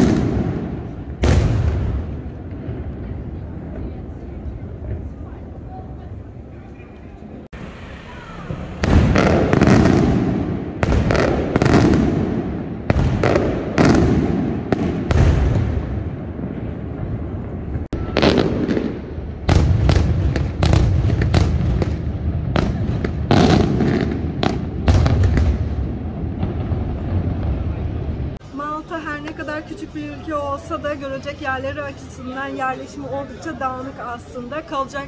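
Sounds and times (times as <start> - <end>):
fireworks bangs with echo: 0.0 - 5.2, 8.0 - 28.4.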